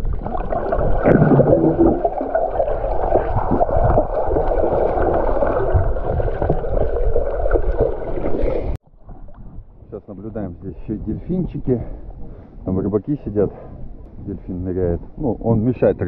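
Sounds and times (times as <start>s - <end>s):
underwater rushing and gurgling water: 0.0s - 9.9s.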